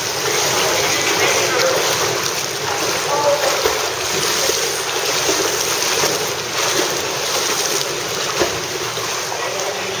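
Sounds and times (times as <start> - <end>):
swimmers splashing: 0.0 - 10.0.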